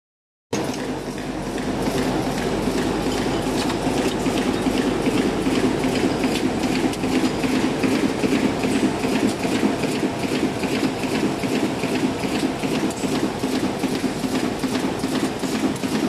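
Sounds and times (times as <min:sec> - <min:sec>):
machine humming: 0:00.6 - 0:16.0
rapid regular machine clatter: 0:00.6 - 0:16.0.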